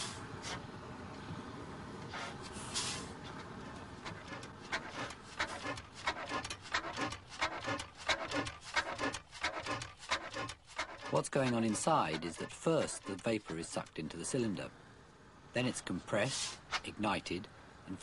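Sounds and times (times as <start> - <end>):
steady hiss: 0.0 - 3.9, 12.7 - 17.7
oil engine chuffs and knocks: 3.5 - 14.0.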